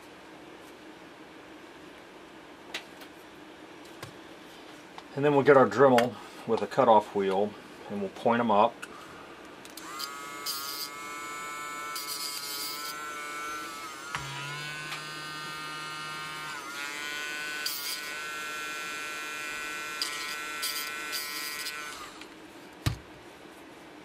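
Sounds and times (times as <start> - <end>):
rotary tool whine: 9.8 - 22.3.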